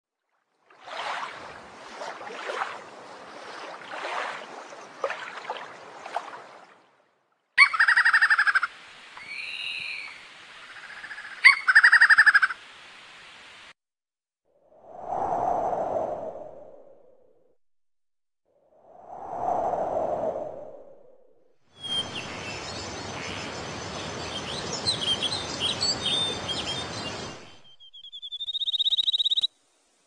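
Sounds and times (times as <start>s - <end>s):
water washing on shore: 0.6s - 7.0s
stuttering bird calls: 7.6s - 12.6s, 24.2s - 29.5s
whistled bird notes: 9.2s - 10.2s, 21.8s - 29.5s.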